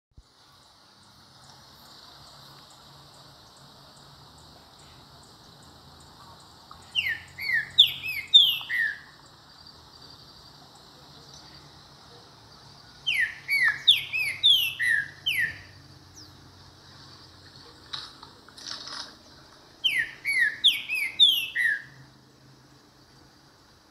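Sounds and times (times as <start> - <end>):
bird whistled song: 6.8 - 9.3, 13.0 - 16.4, 19.8 - 22.1.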